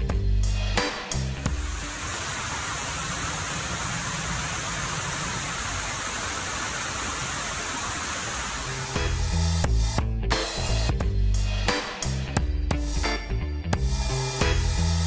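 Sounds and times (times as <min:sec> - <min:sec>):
waterfall rushing: 0:01.5 - 0:09.1.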